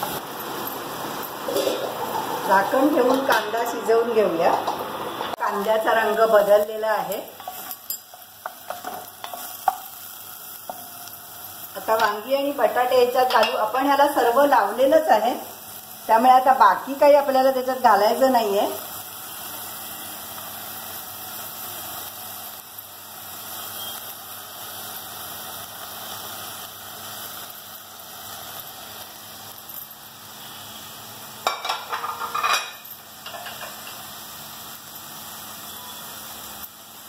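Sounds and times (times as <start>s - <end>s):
onions sizzling in oil: 0.0s - 37.0s
dishes clattering against steel: 31.4s - 34.0s.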